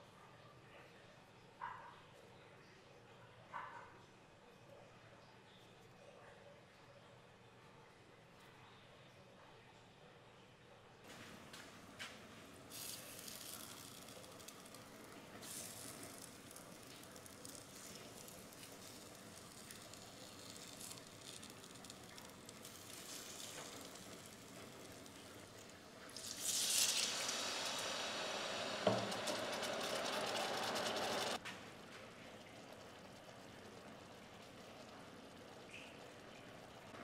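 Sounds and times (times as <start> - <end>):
buns sizzling in oil: 11.1 - 31.5
water hissing in hot pan: 12.6 - 31.4.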